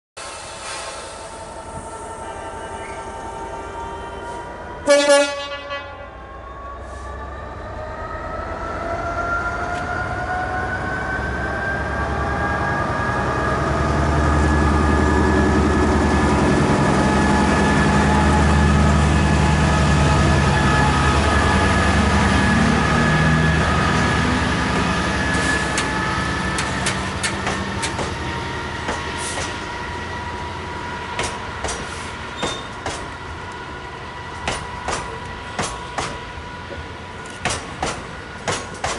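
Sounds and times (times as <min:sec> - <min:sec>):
diesel locomotive engine passing: 0:00.2 - 0:38.9
locomotive horn blast: 0:04.8 - 0:06.2
train wheels clicking over rail joints: 0:25.3 - 0:29.7, 0:31.2 - 0:33.3, 0:34.3 - 0:38.9.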